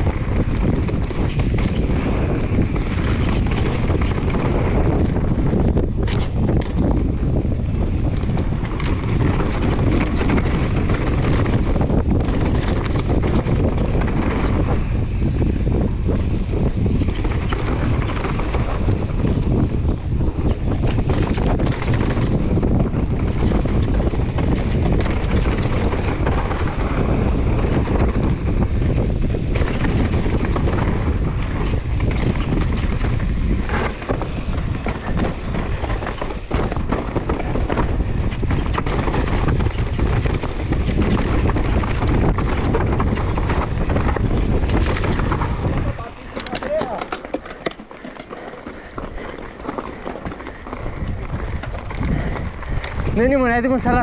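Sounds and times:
bike rattling and knocking: 0.0 - 54.0
wind rush on microphone: 0.0 - 54.0
tyres crunching over gravel: 20.6 - 53.4.

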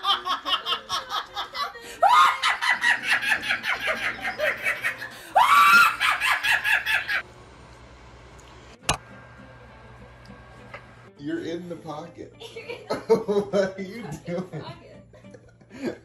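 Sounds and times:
woman laughing hard: 0.0 - 7.2, 12.4 - 13.7
woman shrieking: 1.9 - 2.8, 5.1 - 6.6.

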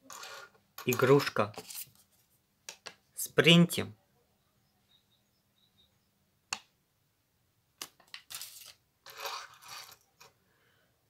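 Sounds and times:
toy car on wooden table: 0.0 - 2.8, 7.8 - 10.4
paper leaflet rustling: 0.9 - 2.3.

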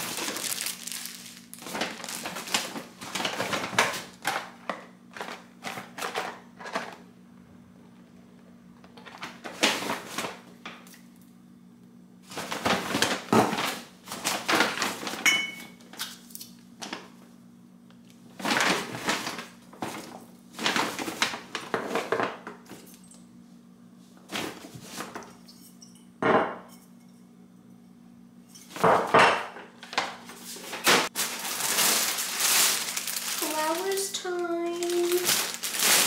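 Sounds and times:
paper bag rustling: 0.0 - 4.4, 12.3 - 15.2, 18.3 - 22.2, 30.3 - 36.0.

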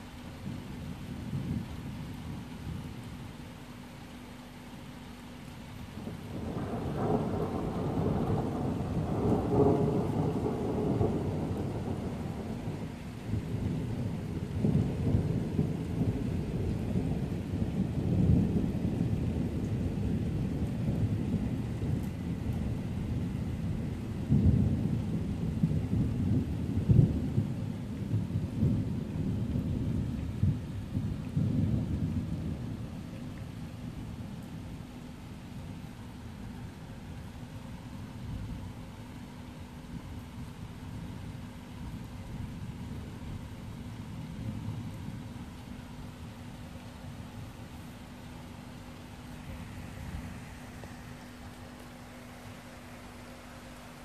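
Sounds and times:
steady rain: 0.0 - 54.0
rolling thunder: 6.0 - 34.8
sharp thunder cracks: 6.3 - 12.8.

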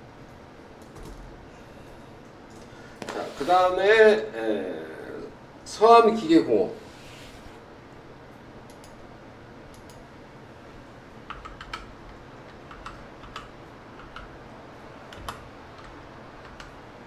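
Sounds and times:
faint room hum: 0.0 - 17.0
keyboard typing: 11.3 - 14.4, 15.0 - 16.8.

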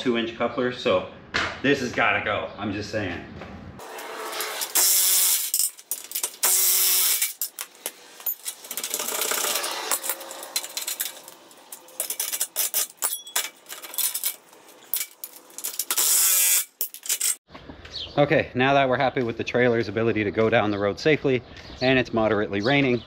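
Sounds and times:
wrench and metal parts clinking: 3.9 - 17.4.

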